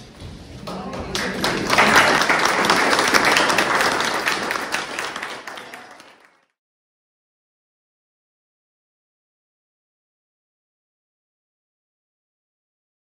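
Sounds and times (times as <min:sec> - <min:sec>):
audience applauding: 0:00.7 - 0:06.6.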